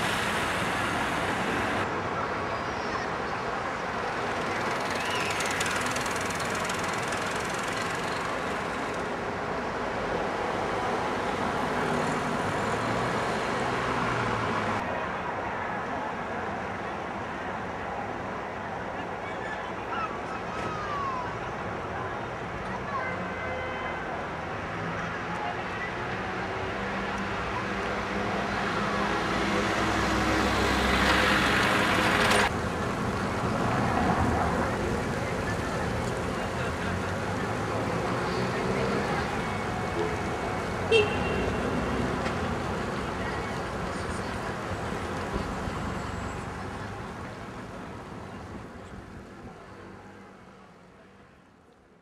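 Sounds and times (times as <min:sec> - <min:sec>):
city traffic rumble and hiss: 0:00.0 - 0:52.0
vehicle passing: 0:26.2 - 0:47.6.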